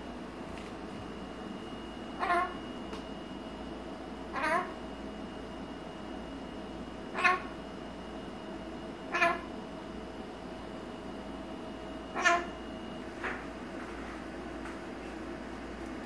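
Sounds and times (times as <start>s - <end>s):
steady background hum: 0.0s - 16.0s
parrot short pitched calls: 2.2s - 2.6s, 4.3s - 4.8s, 7.1s - 7.5s, 9.1s - 9.5s, 12.1s - 12.6s.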